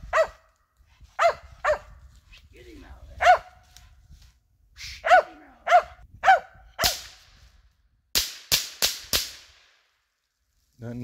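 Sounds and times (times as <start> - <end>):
dog barking: 0.1 - 0.4, 1.2 - 1.9, 3.2 - 3.6, 5.0 - 7.0
sharp cracks: 6.8 - 7.4, 8.1 - 10.1.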